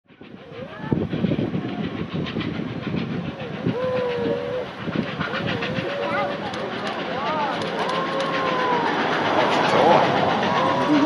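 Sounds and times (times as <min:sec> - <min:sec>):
steam locomotives running hard: 0:00.1 - 0:11.0
steam whistle calls: 0:03.7 - 0:04.8.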